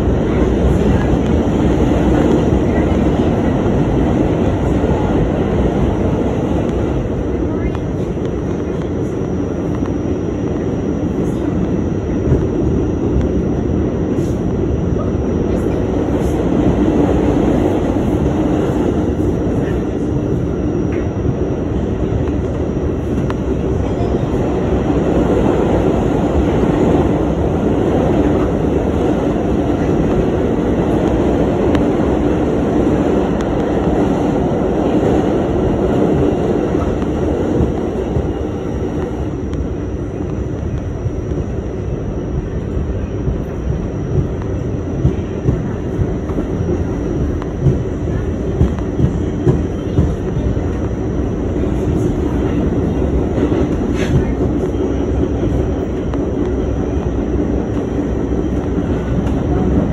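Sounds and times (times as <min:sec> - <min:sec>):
subway train rumble: 0:00.0 - 0:59.9.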